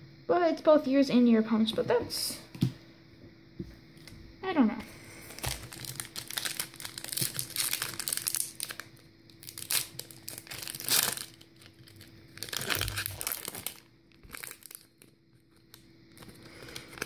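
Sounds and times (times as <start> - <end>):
foil wrapper crinkling and tearing: 5.2 - 17.0.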